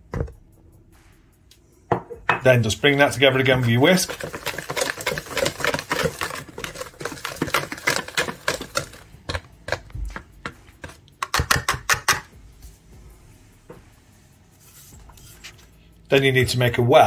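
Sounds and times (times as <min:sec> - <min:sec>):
whisk ticking against metal bowl: 0:02.9 - 0:12.2.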